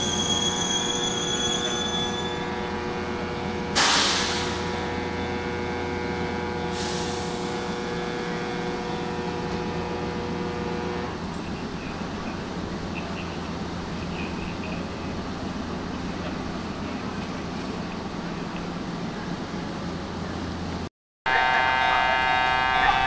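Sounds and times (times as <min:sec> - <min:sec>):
train brake squeal: 0:00.0 - 0:02.5
train electrical hum: 0:00.0 - 0:23.0
air brakes hissing: 0:03.7 - 0:04.8, 0:06.7 - 0:07.5.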